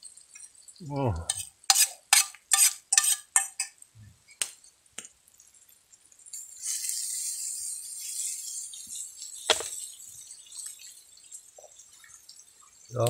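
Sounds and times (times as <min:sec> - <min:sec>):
man saying ahh: 0:00.8 - 0:01.3
metal utensil scraping cookware: 0:01.3 - 0:03.8.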